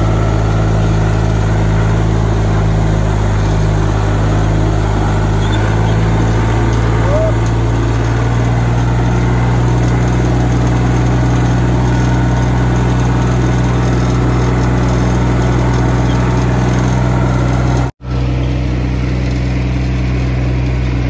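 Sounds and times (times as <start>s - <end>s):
tractor engine droning: 0.0s - 21.0s.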